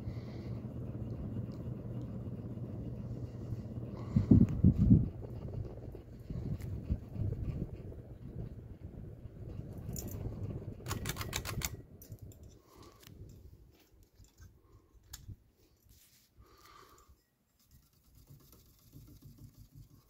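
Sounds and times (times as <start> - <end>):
low rumble: 0.0 - 12.4.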